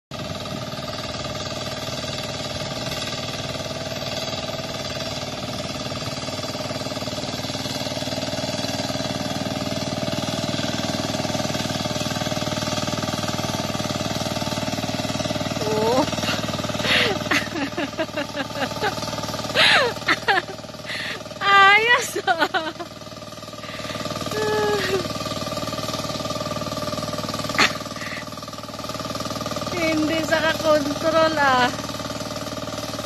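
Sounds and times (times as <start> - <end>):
tractor engine running under load: 0.1 - 33.0.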